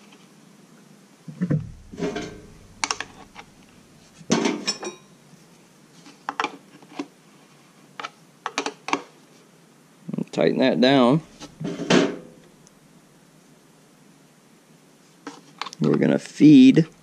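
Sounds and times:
metallic ring: 0:01.5 - 0:05.3.

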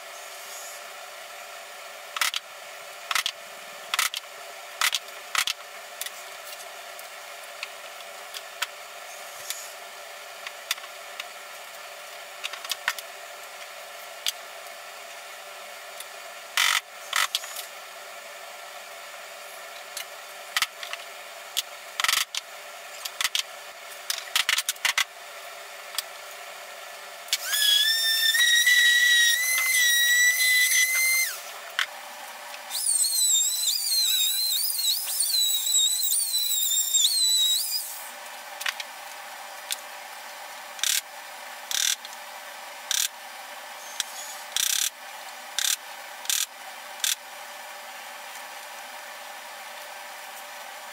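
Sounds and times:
handheld power tool whining: 0:27.3 - 0:31.6, 0:32.7 - 0:38.1.

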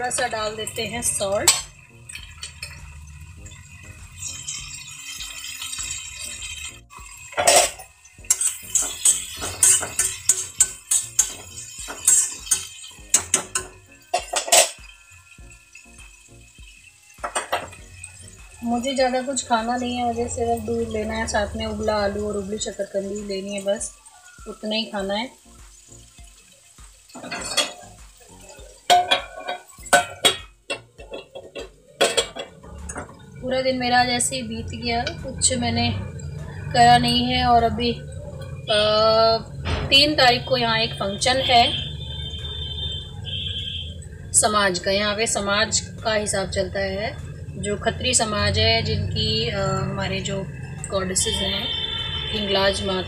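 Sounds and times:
metal utensils clinking and scraping: 0:00.0 - 0:03.0, 0:04.2 - 0:15.2, 0:27.1 - 0:33.3
utensils scraping: 0:07.4 - 0:14.8.

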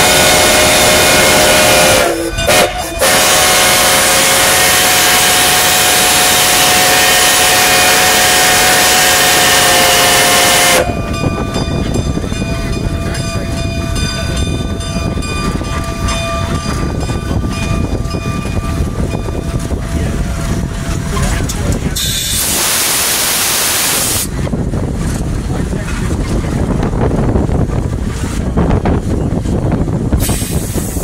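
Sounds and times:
steam whistle blast: 0:00.0 - 0:11.0
locomotive rumble and rattle: 0:00.0 - 0:31.0
steam hiss: 0:22.0 - 0:24.3, 0:30.1 - 0:31.0.

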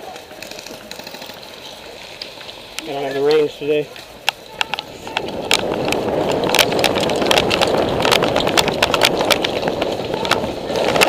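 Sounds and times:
running footsteps on dry leaves: 0:00.0 - 0:11.0
gear rattling and knocking: 0:04.6 - 0:11.0.

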